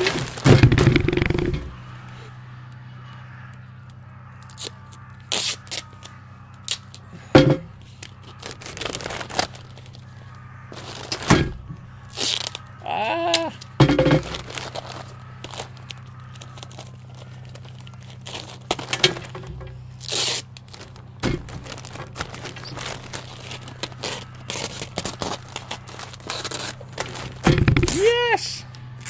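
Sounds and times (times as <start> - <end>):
wrapping paper crinkling: 0.0 - 1.5, 4.4 - 7.0, 7.8 - 11.4, 12.0 - 12.8, 13.4 - 27.5
paper ripping: 4.5 - 7.0, 8.0 - 10.0, 12.1 - 12.7, 14.3 - 27.5.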